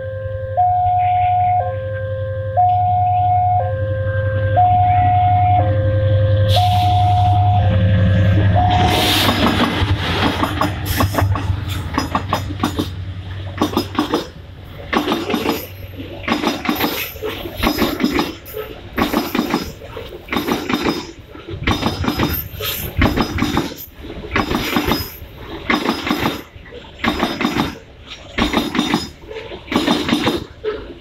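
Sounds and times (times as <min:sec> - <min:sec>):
locomotive engine droning: 0:00.0 - 0:20.3
train wheels clacking on rails: 0:08.5 - 0:31.0.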